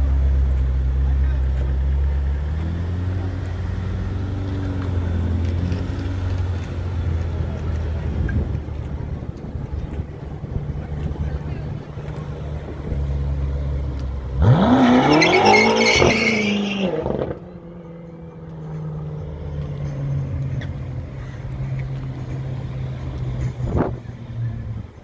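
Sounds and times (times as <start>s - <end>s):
coach engine drone: 0.0s - 25.0s
car engine revving hard: 14.4s - 17.4s
tyre squeal: 14.5s - 17.2s.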